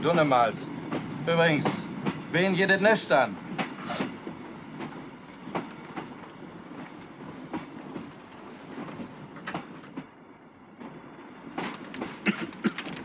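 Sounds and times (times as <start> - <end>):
train wheels rumbling: 0.0 - 13.0
wheels clicking over rail joints: 11.5 - 13.0.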